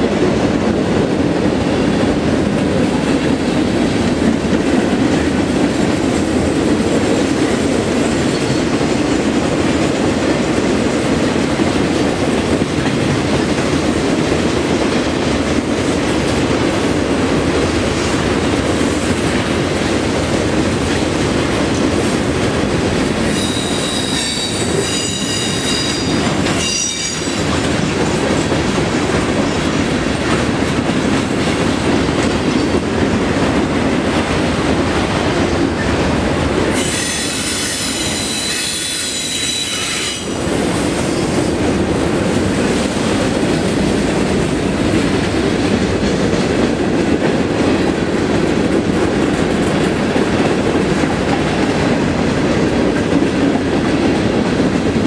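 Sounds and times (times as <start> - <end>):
train wheels rumbling and clattering: 0.0 - 55.0
high wheel squeal: 23.2 - 27.5, 36.7 - 40.3.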